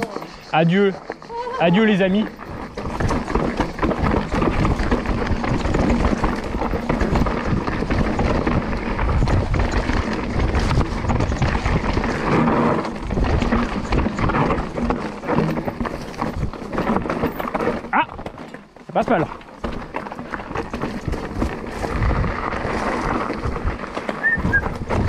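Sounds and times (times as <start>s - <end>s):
bike tyres crunching over stones: 0.0s - 25.0s
wind on microphone: 21.1s - 25.0s.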